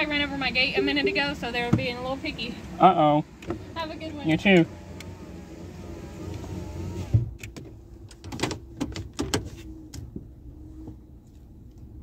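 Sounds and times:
power window motor: 0:00.0 - 0:07.6
low steady rumble: 0:00.0 - 0:12.0.

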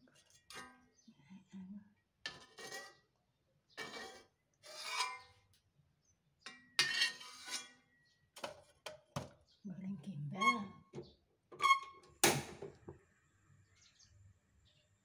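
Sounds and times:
metal spatula scraping a wok: 0:00.1 - 0:00.9, 0:02.3 - 0:03.1, 0:03.7 - 0:05.4, 0:06.5 - 0:08.0.

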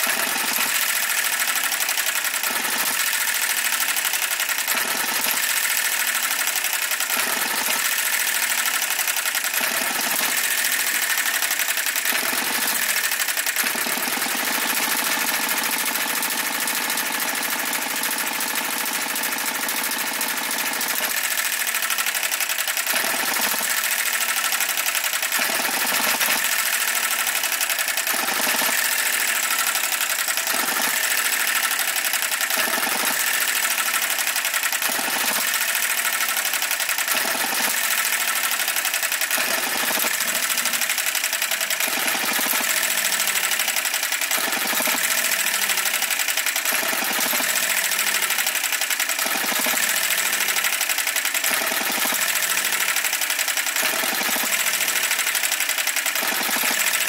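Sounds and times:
model petrol engine clattering: 0:00.0 - 0:57.0.

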